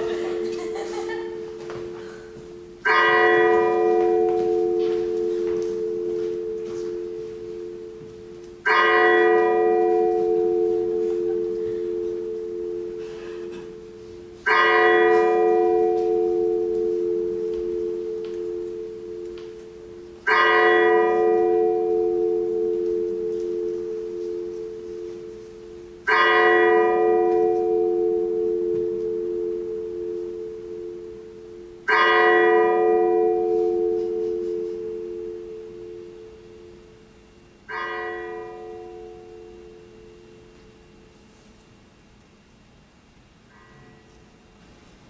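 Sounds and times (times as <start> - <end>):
large bell tolling: 0.0 - 41.3, 43.4 - 44.6.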